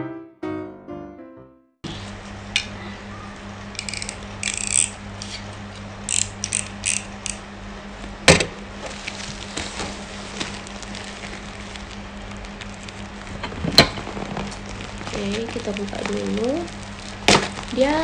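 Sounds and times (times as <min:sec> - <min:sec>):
low steady hum: 0:01.9 - 0:18.0
plastic packaging crinkling: 0:08.8 - 0:18.0.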